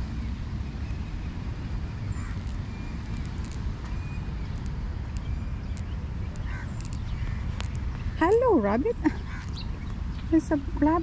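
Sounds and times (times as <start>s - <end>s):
wind buffeting microphone: 0.0s - 11.0s
faint bird calls: 2.0s - 10.6s.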